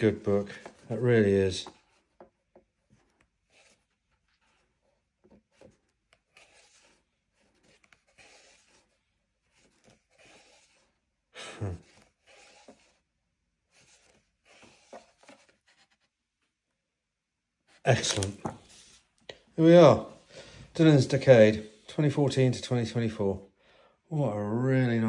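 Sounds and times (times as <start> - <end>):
book pages turning: 0.0 - 11.1, 11.7 - 16.6, 17.7 - 19.2.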